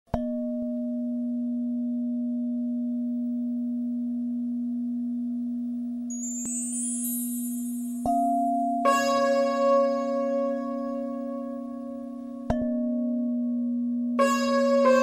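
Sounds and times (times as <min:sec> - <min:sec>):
low steady tone: 0:00.2 - 0:15.0
high bell-like tones: 0:06.1 - 0:09.2.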